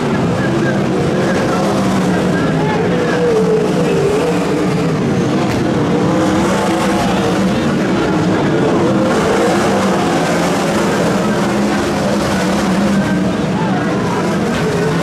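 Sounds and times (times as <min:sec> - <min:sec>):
race car engines roaring: 0:00.0 - 0:15.0.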